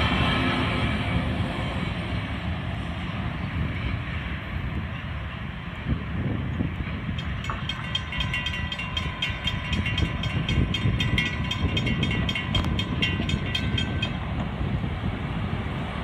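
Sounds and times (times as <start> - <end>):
freight train rumble: 0.0 - 16.0
crossing bell ringing rapidly: 7.0 - 14.4.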